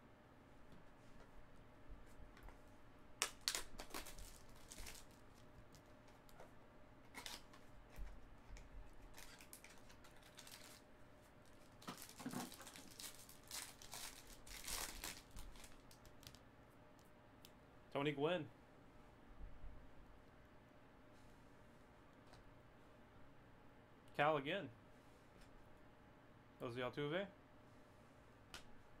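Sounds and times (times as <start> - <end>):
foil wrapper crinkling and tearing: 3.2 - 6.2, 7.1 - 7.6, 9.0 - 10.8, 11.4 - 16.4.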